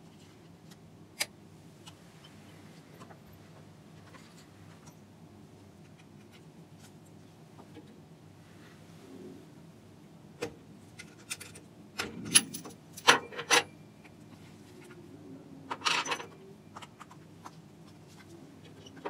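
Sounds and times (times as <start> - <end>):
metallic clicks and clinks: 12.2 - 13.7.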